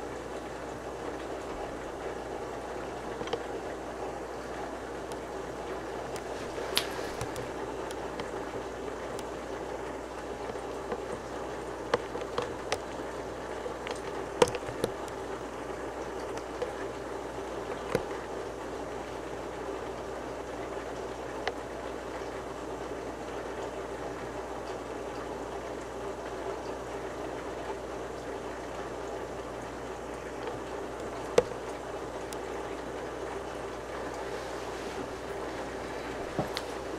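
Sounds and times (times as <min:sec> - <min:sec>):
falling churning water: 0:00.0 - 0:24.6.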